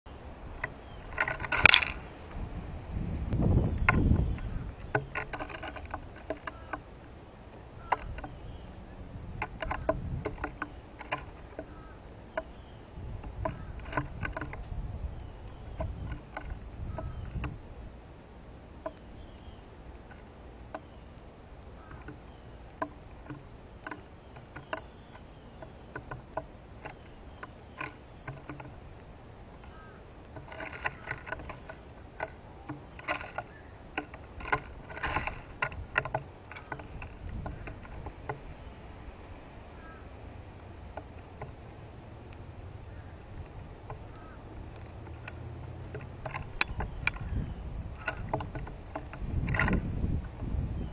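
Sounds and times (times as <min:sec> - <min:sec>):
birds pecking on wooden board: 0:00.5 - 0:02.0, 0:03.4 - 0:08.5, 0:09.3 - 0:17.6, 0:19.9 - 0:38.7, 0:40.5 - 0:50.6.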